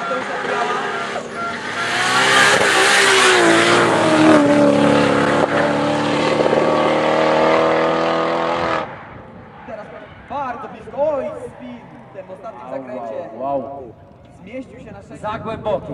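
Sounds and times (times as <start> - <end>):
car engine at high revs: 0.0 - 10.2.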